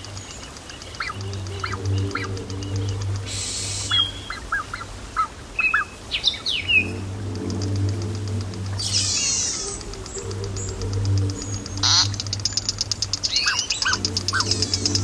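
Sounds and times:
bird calls and whistles: 0.0s - 7.0s, 8.8s - 15.0s
fast high ticking: 0.0s - 15.0s
low steady hum: 0.0s - 15.0s
burst of hiss: 3.3s - 4.0s.

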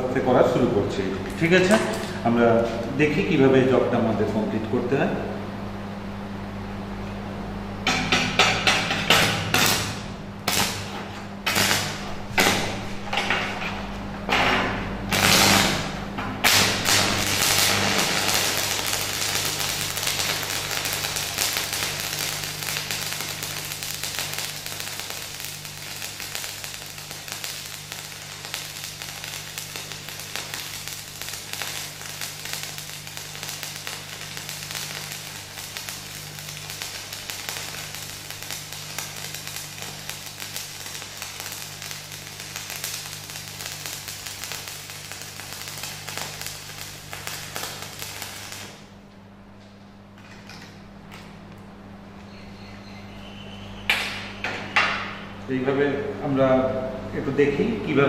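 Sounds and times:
welding arc crackling: 0.0s - 3.4s, 7.8s - 49.0s
steady low hum: 0.0s - 58.0s.

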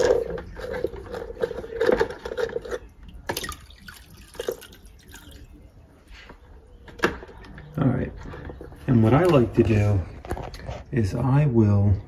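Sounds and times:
liquid trickling into a bucket: 0.0s - 5.8s.

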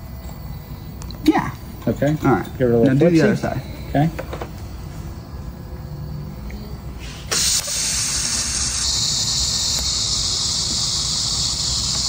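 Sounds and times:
welding arc hissing: 7.0s - 12.0s.

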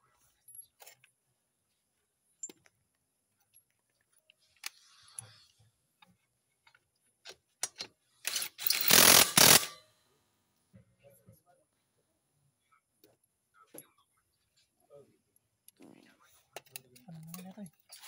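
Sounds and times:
cordless impact driver running: 8.3s - 9.7s.

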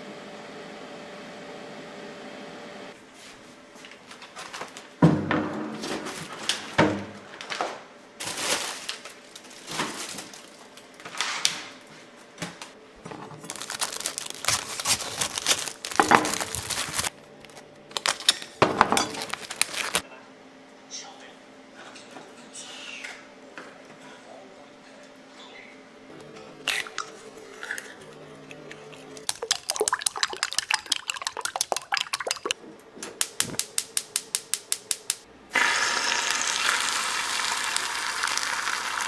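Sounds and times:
plastic packaging crinkling: 8.2s - 11.1s, 13.2s - 20.0s.

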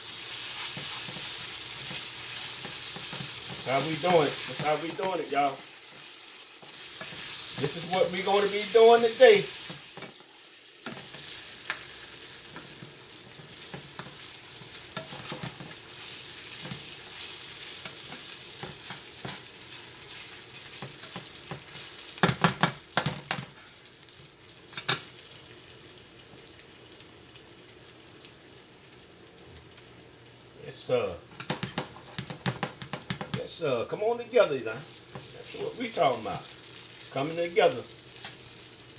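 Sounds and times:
rice and onions sizzling: 0.0s - 38.9s
spatula knocking and scraping pan: 0.4s - 5.2s, 5.9s - 10.2s, 10.8s - 19.5s, 20.1s - 23.5s, 31.3s - 33.5s, 35.1s - 35.4s.

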